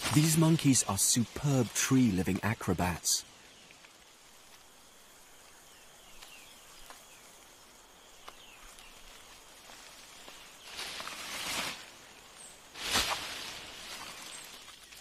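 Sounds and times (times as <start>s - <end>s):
high insect hum: 0.0s - 15.0s.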